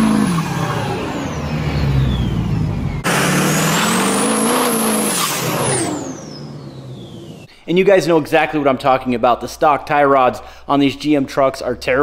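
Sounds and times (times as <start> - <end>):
pickup truck engine accelerating: 0.0 - 7.5.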